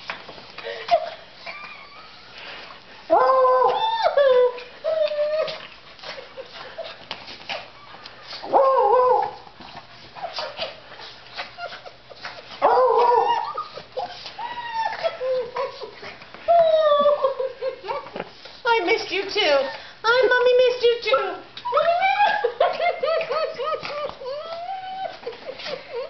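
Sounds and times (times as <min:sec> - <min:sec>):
dogs whining and howling: 0:00.9 - 0:02.4, 0:03.1 - 0:06.2, 0:07.6 - 0:09.6, 0:10.2 - 0:18.1, 0:21.6 - 0:26.0.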